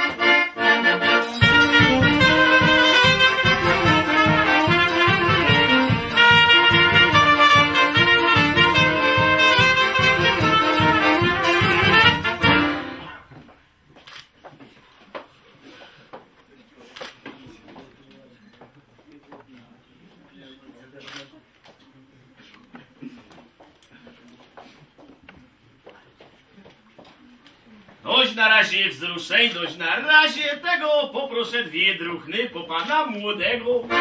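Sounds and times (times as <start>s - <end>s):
live band with brass: 0.0s - 13.3s, 33.8s - 34.0s.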